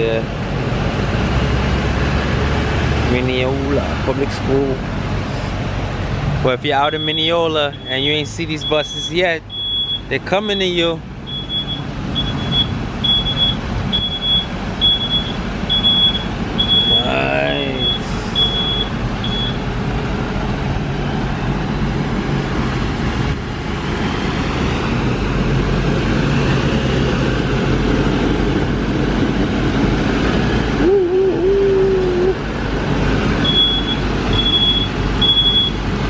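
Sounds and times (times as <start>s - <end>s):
large vehicle engine running: 0.0s - 36.0s
reversing alarm beeping: 6.9s - 19.6s, 33.4s - 35.8s.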